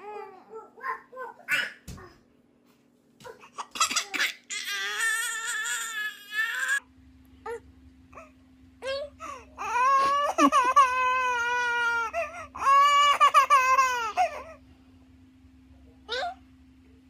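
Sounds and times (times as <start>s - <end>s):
baby crying: 3.3s - 6.8s, 9.6s - 14.6s.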